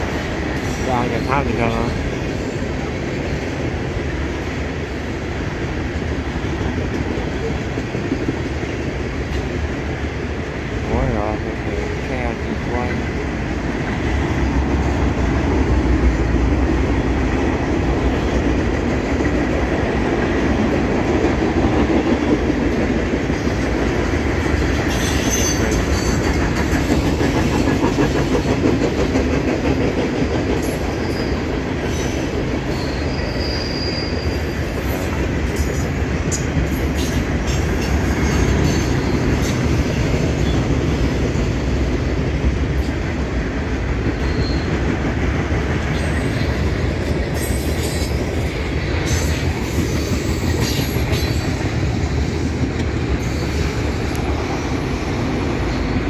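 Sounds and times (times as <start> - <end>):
train wheels rumbling on rails: 0.0 - 56.0
high wheel squeals: 31.0 - 35.0, 44.2 - 44.8.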